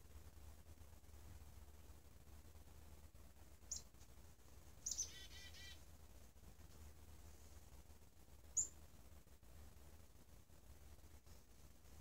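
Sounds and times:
chickadee call: 0:04.9 - 0:05.8.

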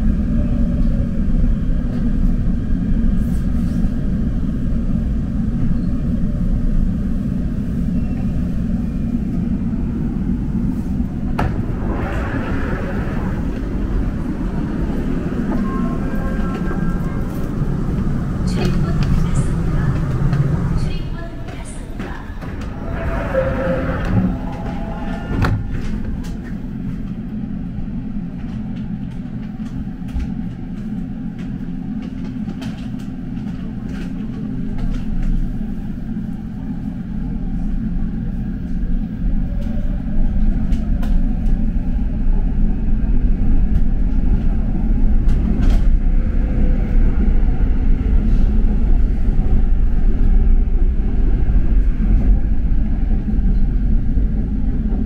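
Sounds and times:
subway train rumble from inside: 0:00.0 - 0:55.0.

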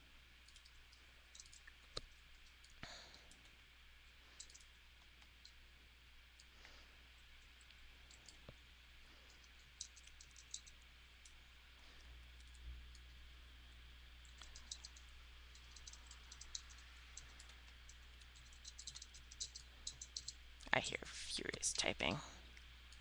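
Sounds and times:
low electrical hum: 0:00.0 - 0:23.0
computer keyboard typing: 0:00.4 - 0:03.5, 0:04.4 - 0:04.8, 0:09.3 - 0:11.4, 0:12.4 - 0:13.2, 0:14.2 - 0:20.4
mouse clicking: 0:00.4 - 0:03.5, 0:04.4 - 0:05.6, 0:09.3 - 0:11.4, 0:14.2 - 0:20.4.

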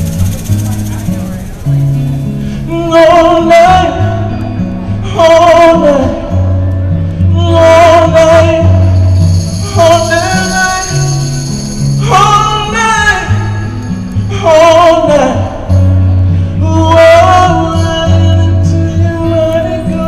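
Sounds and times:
bass line: 0:00.0 - 0:14.8
acoustic guitar: 0:00.0 - 0:20.0
man singing into microphone: 0:02.5 - 0:15.8, 0:16.4 - 0:20.0.

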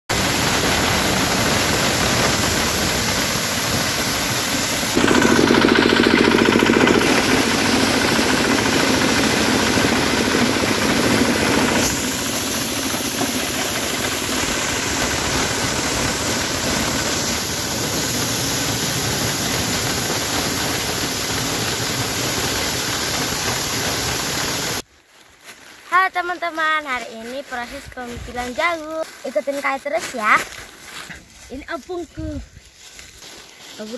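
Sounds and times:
corn sheller engine running: 0:00.1 - 0:24.8.

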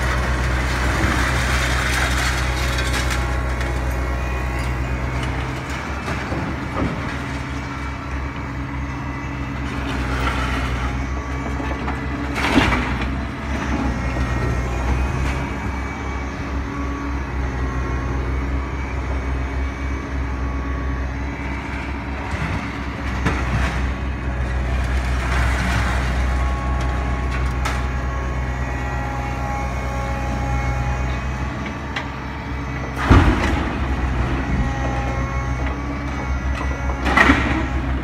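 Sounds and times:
scrap metal crashing: 0:00.0 - 0:07.5, 0:33.0 - 0:35.2
machine engine droning: 0:00.0 - 0:38.0.

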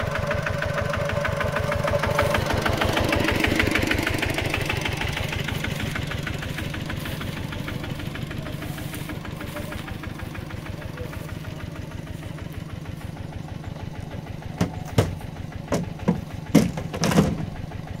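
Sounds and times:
tractor engine idling: 0:00.0 - 0:18.0
sharp knocks and thuds: 0:14.4 - 0:17.6.

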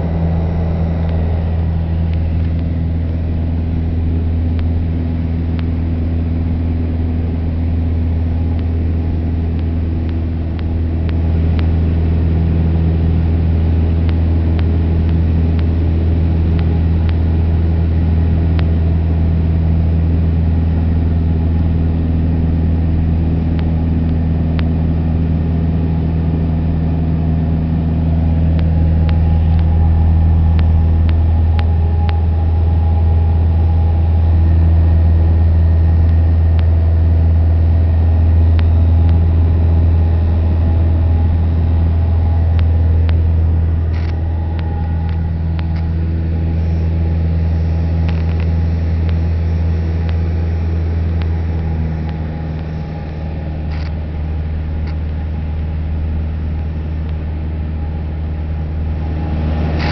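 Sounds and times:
airplane engine droning in cabin: 0:00.0 - 0:59.9.

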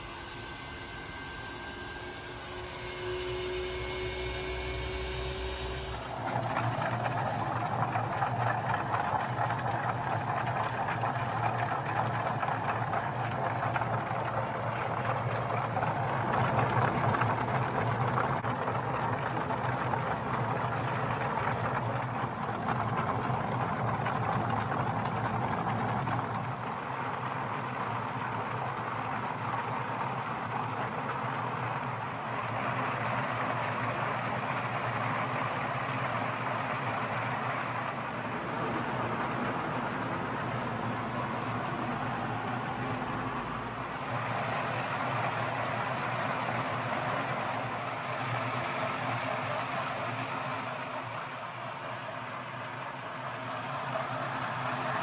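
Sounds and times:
machine motor hum: 0:00.0 - 0:55.0
walnuts tumbling in spinning drum: 0:05.6 - 0:26.6.

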